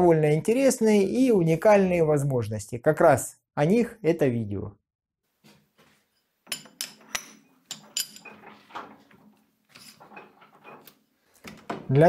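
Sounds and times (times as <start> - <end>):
metal clinks and knocks: 6.2 - 10.9.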